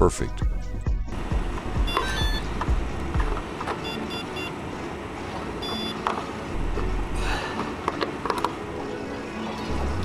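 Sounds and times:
low steady rumble: 1.0s - 7.4s
short electronic beep: 1.8s - 2.5s, 3.8s - 4.5s, 5.6s - 6.0s.

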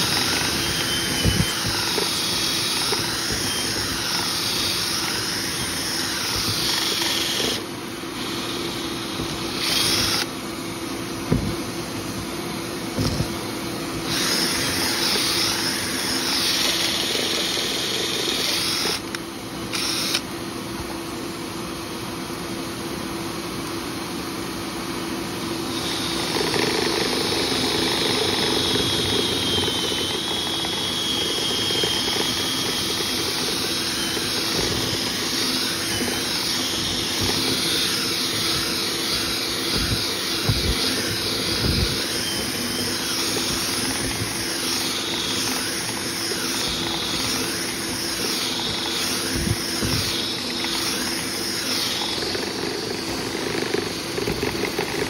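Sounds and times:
motor whining: 0.0s - 10.3s, 14.0s - 20.3s, 25.8s - 55.0s
dull thumps: 11.3s - 11.6s.

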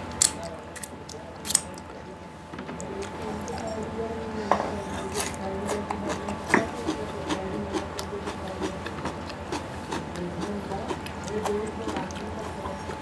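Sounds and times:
person chewing food: 5.0s - 13.0s.

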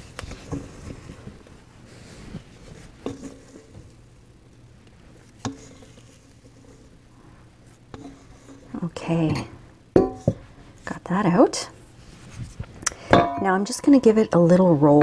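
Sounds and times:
spatula scraping dough from bowl: 5.3s - 7.0s, 7.8s - 9.5s
spatula knocking on metal bowl: 9.2s - 10.4s.

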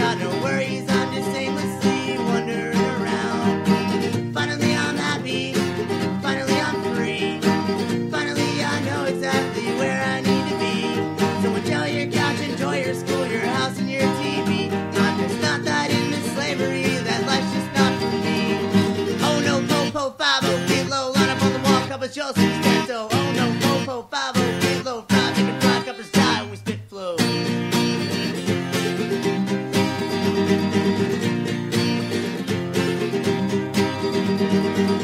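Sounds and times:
acoustic guitar strummed hard: 0.0s - 35.0s.

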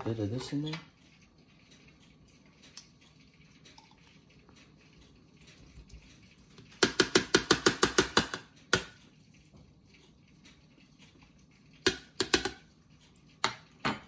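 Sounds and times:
spoon tapping bowl rim: 11.9s - 12.7s.

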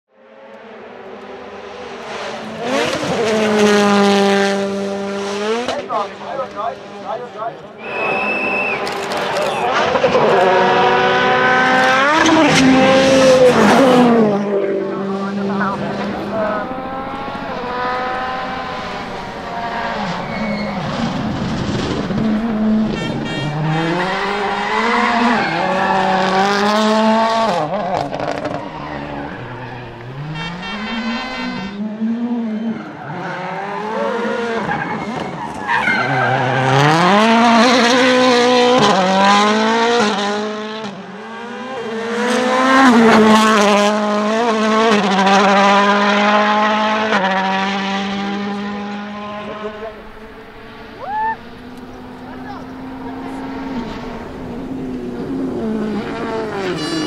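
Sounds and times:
rally car engines revving: 0.2s - 57.0s
engine crackles: 2.0s - 31.6s, 47.9s - 57.0s.

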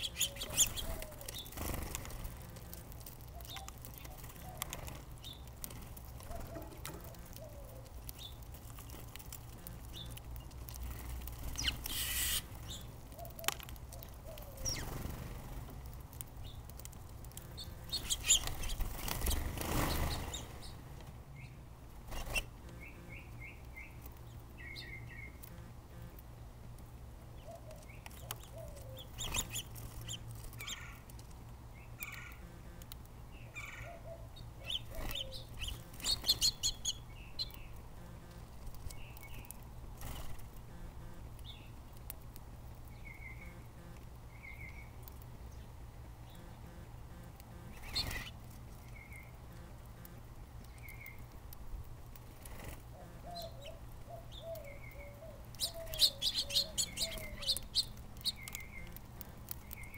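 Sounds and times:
wing flutter: 0.0s - 12.7s, 17.4s - 20.7s, 38.0s - 41.2s, 47.5s - 48.9s, 52.2s - 53.3s
small birds chirping: 0.0s - 26.2s, 27.2s - 51.4s, 52.1s - 59.9s.

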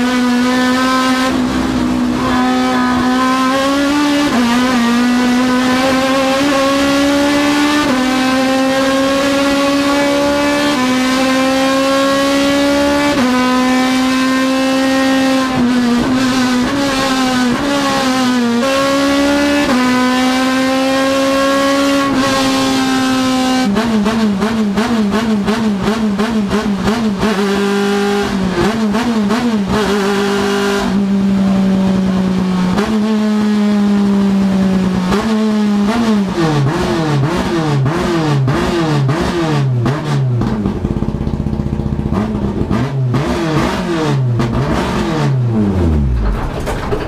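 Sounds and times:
race car engine revving: 0.0s - 47.0s.

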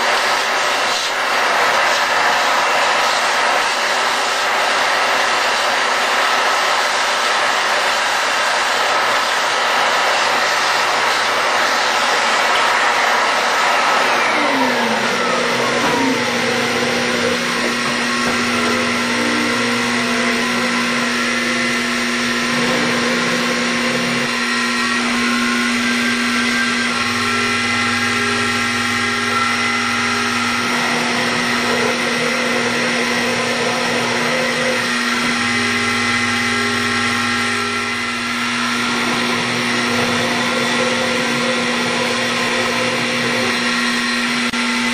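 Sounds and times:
mill motor cutting plastic: 10.2s - 44.9s.

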